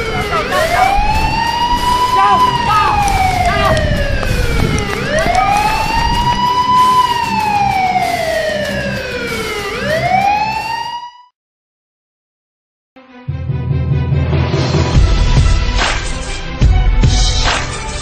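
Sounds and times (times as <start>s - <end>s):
low rumble: 0.0s - 6.4s
siren wailing: 0.0s - 11.3s.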